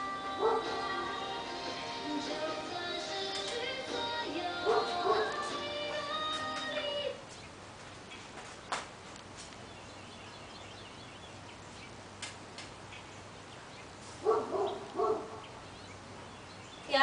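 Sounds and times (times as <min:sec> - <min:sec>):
dog barking: 0:00.4 - 0:00.8, 0:04.6 - 0:05.4, 0:14.2 - 0:15.5.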